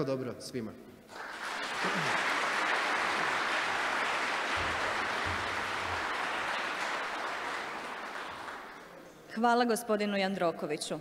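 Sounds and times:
audience applauding: 1.1 - 9.0.

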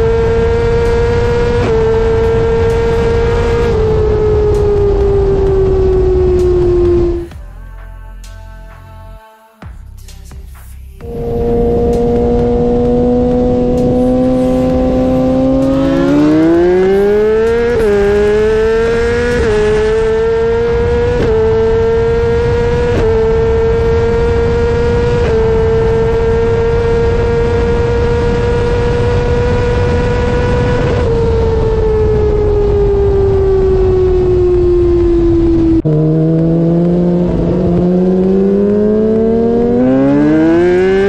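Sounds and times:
motorcycle engine revving: 0.0 - 7.4, 11.0 - 41.0
wind rush on microphone: 12.2 - 36.0.

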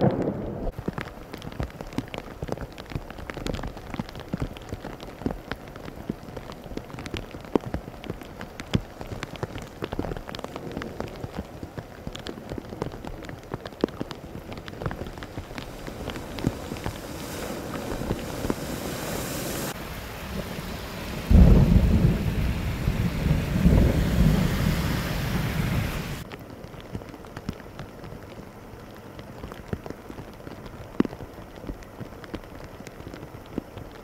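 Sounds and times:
rain: 0.0 - 34.0
rushing floodwater: 0.7 - 34.0
vehicles splashing through floodwater: 14.5 - 26.2
deep rolling rumble: 15.0 - 26.2.

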